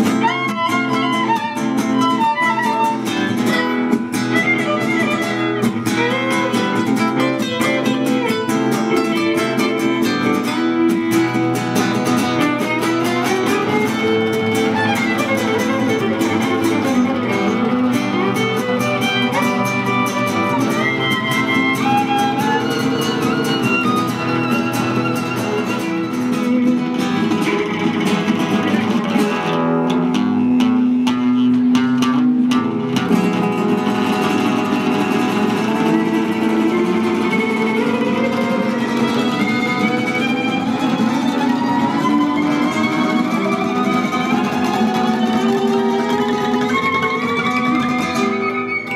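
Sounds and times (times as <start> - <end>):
violin melody: 0.0 - 29.6, 33.2 - 48.9
strummed guitar chords: 0.0 - 48.9.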